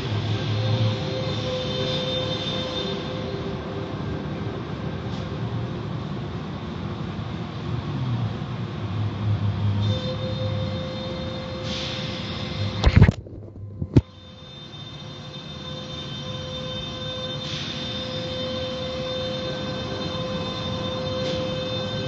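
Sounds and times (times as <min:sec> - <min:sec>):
car wash brushes and spray: 0:11.6 - 0:12.6.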